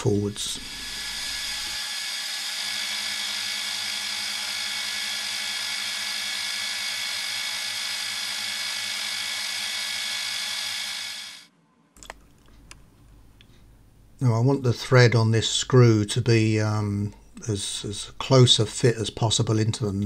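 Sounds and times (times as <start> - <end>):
milling machine high-pitched whine: 0.0 - 11.5.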